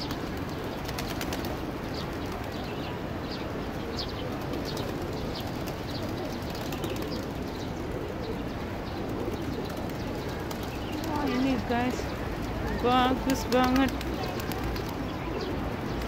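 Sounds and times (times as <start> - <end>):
outdoor hubbub: 0.0 - 16.0
small birds chirping: 0.0 - 16.0
pigeons cooing: 3.7 - 16.0.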